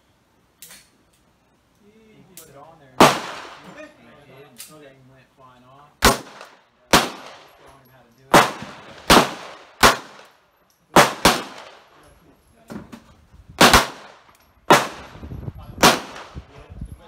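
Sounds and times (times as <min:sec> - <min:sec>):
fainter gunshots: 0:03.0 - 0:03.8, 0:06.0 - 0:07.5, 0:08.3 - 0:10.3, 0:11.0 - 0:11.8, 0:13.6 - 0:15.2, 0:15.8 - 0:16.5
pistol shots with echo: 0:03.0 - 0:03.8, 0:06.0 - 0:07.6, 0:08.3 - 0:10.4, 0:11.0 - 0:11.9, 0:13.6 - 0:15.2, 0:15.8 - 0:16.5.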